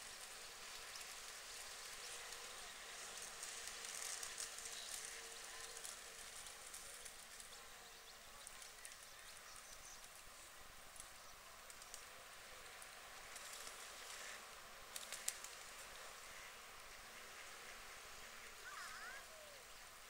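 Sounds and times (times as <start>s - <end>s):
steady high hiss: 0.0s - 20.0s
faint ticks: 10.9s - 12.1s, 12.8s - 16.0s.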